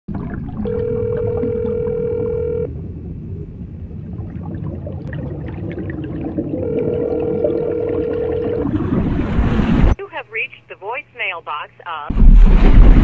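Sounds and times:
low rumble: 0:00.1 - 0:10.0, 0:12.1 - 0:13.0
telephone ringback tone: 0:00.7 - 0:02.7, 0:06.6 - 0:08.7.

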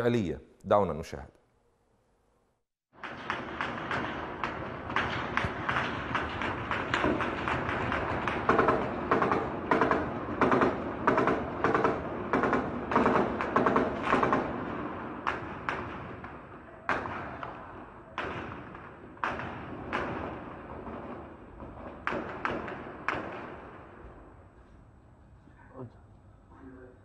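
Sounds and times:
gunshots echoing off buildings: 0:02.9 - 0:24.6.

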